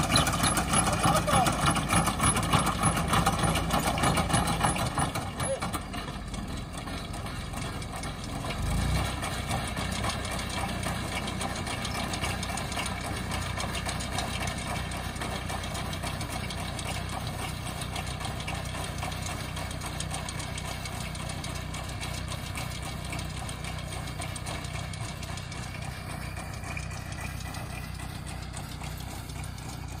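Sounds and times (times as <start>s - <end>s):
tractor engine running: 0.0s - 30.0s.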